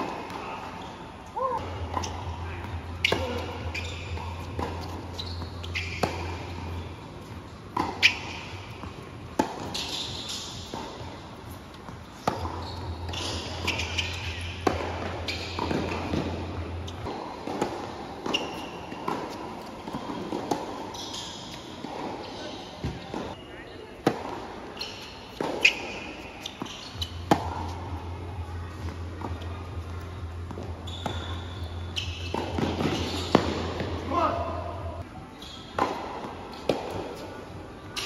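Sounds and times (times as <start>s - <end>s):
ball bouncing on hard court: 1.4s - 6.8s, 7.7s - 11.2s, 11.8s - 22.2s, 25.3s - 27.9s, 30.0s - 34.2s
tennis ball hit by rackets: 3.0s - 6.6s, 7.7s - 11.2s, 11.8s - 16.4s, 17.1s - 20.9s, 32.3s - 34.0s, 35.8s - 37.2s.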